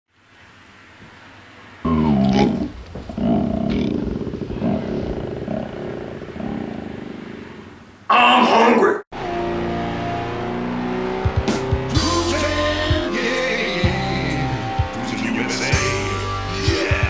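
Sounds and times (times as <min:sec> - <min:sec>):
man belching: 0:01.9 - 0:07.4.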